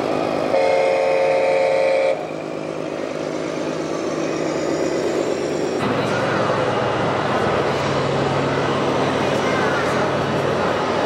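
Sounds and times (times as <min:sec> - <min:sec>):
engine running: 0:00.0 - 0:11.0
truck horn blast: 0:00.5 - 0:02.2.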